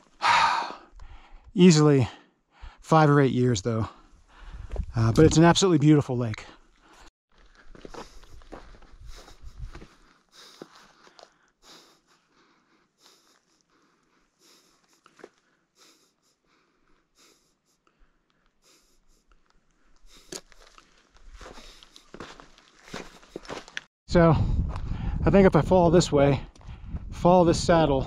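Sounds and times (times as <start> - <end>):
soft breathing: 3.9 - 4.8, 6.8 - 20.8
footsteps crunching on gravel: 7.3 - 11.3, 20.1 - 23.9.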